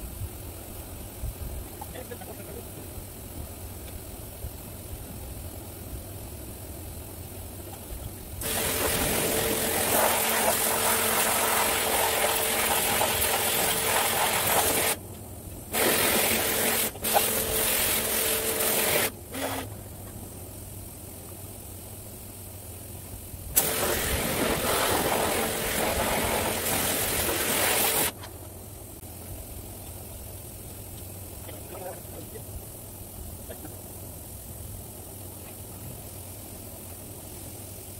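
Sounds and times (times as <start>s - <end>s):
pressure washer motor hum: 8.4s - 15.0s, 15.7s - 19.8s, 23.6s - 28.2s
water jet spraying: 8.4s - 15.0s, 15.7s - 19.7s, 23.6s - 28.2s.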